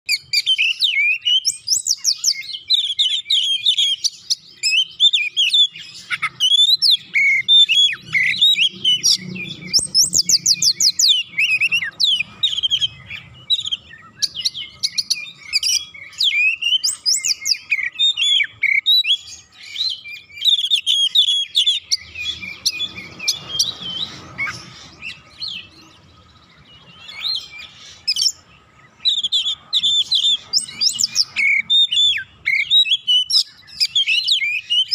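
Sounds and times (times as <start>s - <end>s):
bird singing whistles and trills: 0.1s - 34.9s.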